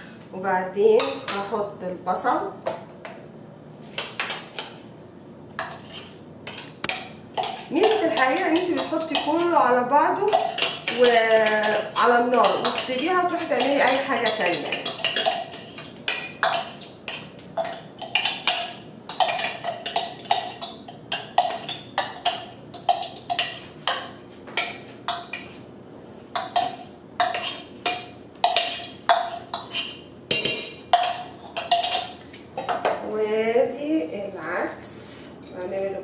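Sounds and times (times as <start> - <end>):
onion scraped into pot: 26.8 - 27.8, 28.6 - 30.1.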